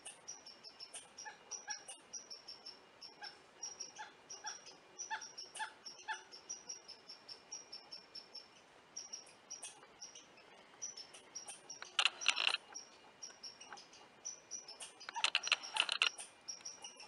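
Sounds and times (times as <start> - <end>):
squirrel chirping: 0.0 - 17.0
squirrel harsh chucking calls: 0.8 - 2.2, 3.0 - 6.9, 14.7 - 17.0.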